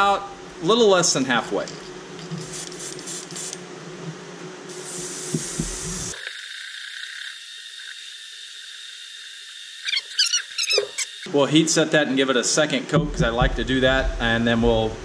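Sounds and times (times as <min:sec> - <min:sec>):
airbrush spraying hiss: 0:02.2 - 0:03.6, 0:04.7 - 0:06.3.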